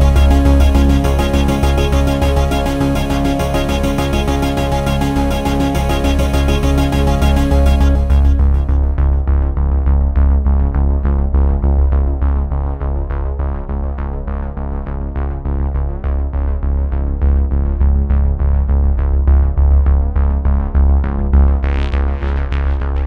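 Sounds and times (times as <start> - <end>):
electronic synthesizer music: 0.0 - 9.3.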